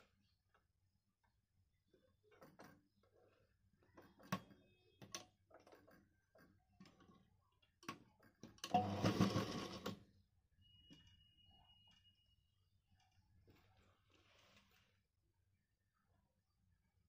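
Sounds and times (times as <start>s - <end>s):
sewing machine stitching: 8.6s - 10.1s.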